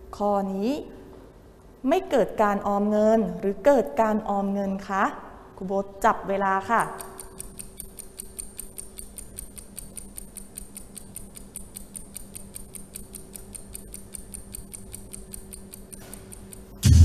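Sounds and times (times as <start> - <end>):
faint steady hum: 0.0 - 16.9
clock ticking quickly: 6.8 - 16.8.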